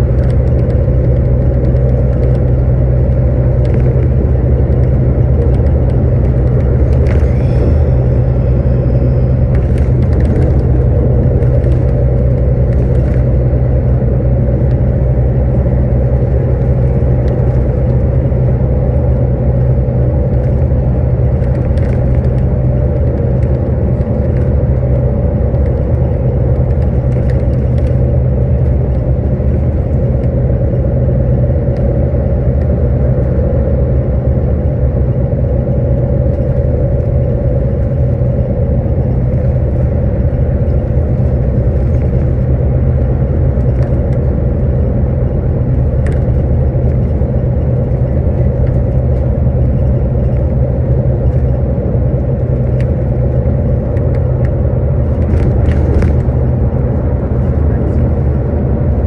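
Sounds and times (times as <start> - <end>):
engine and tyre rumble inside vehicle: 0.0 - 59.0.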